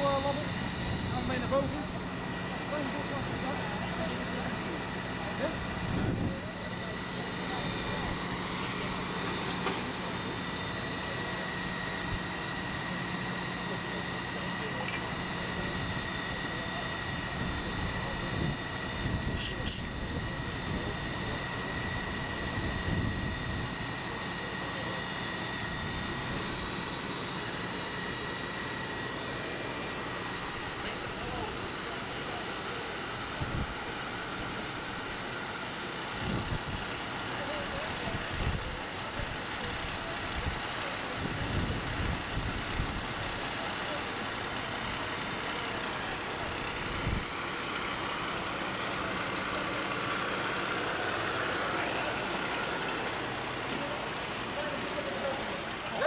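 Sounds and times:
fire engine pump drone: 0.0s - 56.0s
high pump whine: 0.0s - 56.0s.

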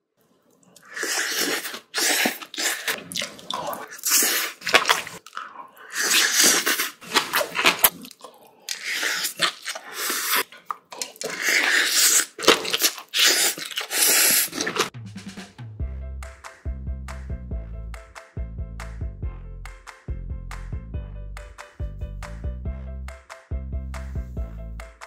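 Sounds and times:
person chewing and crunching food: 0.2s - 15.0s.

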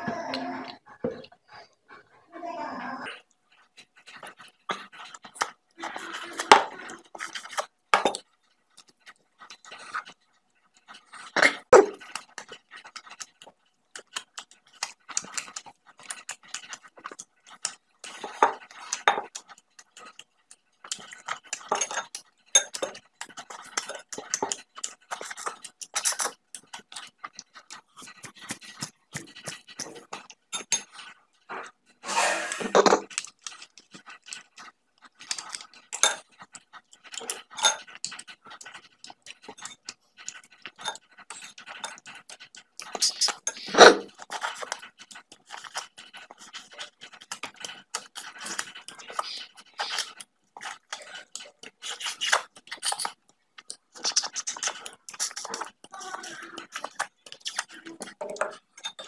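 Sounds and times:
lip smacking: 3.2s - 59.0s
spoon clinking against bone and bowl: 21.5s - 26.3s, 37.1s - 38.2s, 56.7s - 59.0s
wet sucking and slurping: 22.8s - 59.0s.

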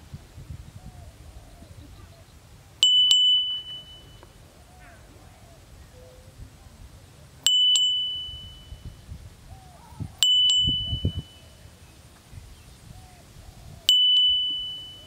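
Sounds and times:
high metallic chime: 2.8s - 4.4s, 7.5s - 9.0s, 10.2s - 11.6s, 13.9s - 15.0s.

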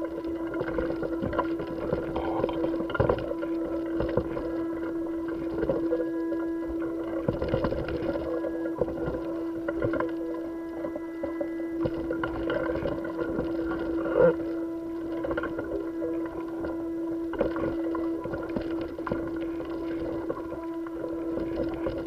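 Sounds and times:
steady mid-pitched hum: 0.0s - 22.0s.

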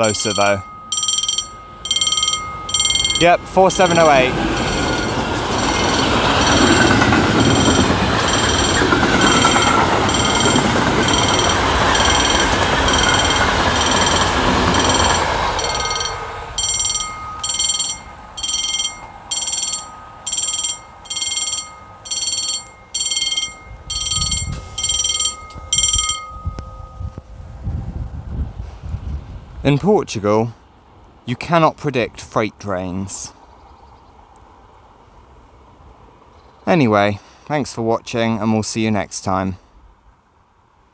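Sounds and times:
mechanical crossing bells ringing: 0.0s - 27.3s
freight train rumbling past: 0.0s - 29.7s.

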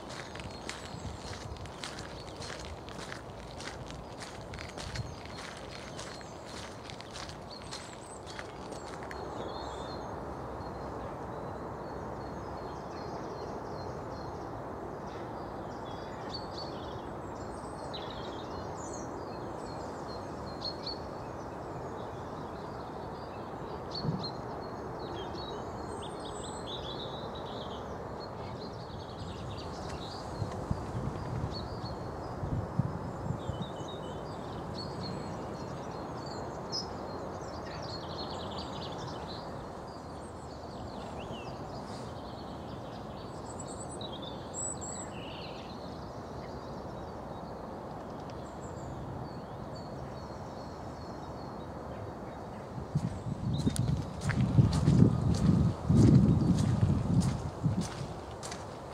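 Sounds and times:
birds chirping: 0.0s - 10.0s, 49.8s - 58.9s.

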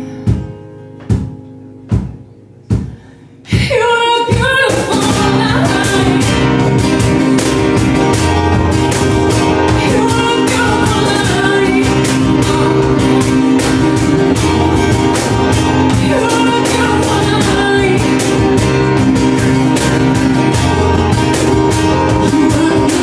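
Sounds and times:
acoustic guitar: 0.0s - 23.0s
cajon beat: 0.0s - 23.0s
woman singing: 3.5s - 7.5s, 8.8s - 23.0s
digital piano: 5.1s - 23.0s.

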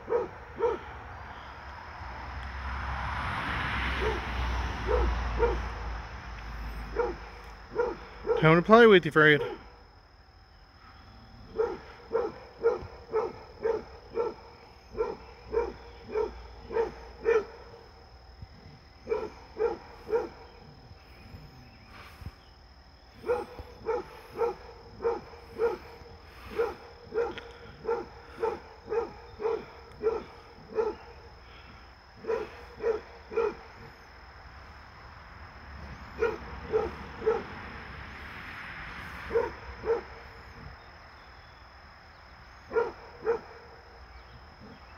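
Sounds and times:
dog barking: 0.0s - 0.9s, 4.0s - 5.8s, 6.8s - 8.6s, 9.4s - 9.7s, 11.4s - 17.7s, 19.0s - 20.5s, 23.2s - 31.2s, 32.2s - 34.0s, 36.1s - 37.6s, 39.3s - 40.3s, 42.7s - 43.7s.

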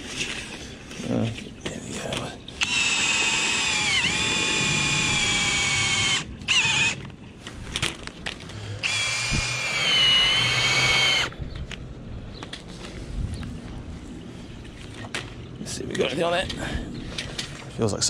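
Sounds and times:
cordless drill motor whine: 2.6s - 7.0s, 8.8s - 11.3s.

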